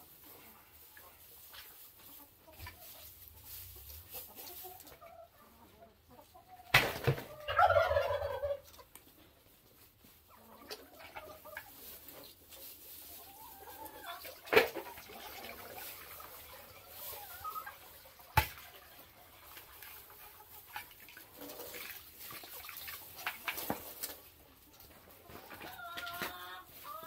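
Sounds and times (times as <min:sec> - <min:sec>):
chickens clucking: 0:00.0 - 0:27.0
chicken squawk: 0:07.3 - 0:08.8.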